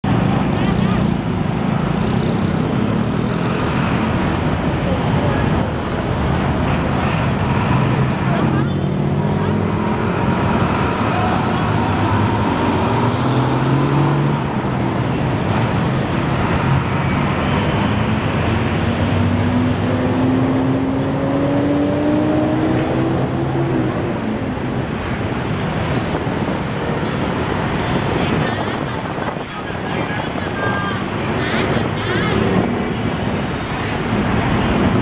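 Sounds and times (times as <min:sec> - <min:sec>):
heavy road traffic: 0:00.0 - 0:35.0
vehicle engine accelerating: 0:06.5 - 0:24.9.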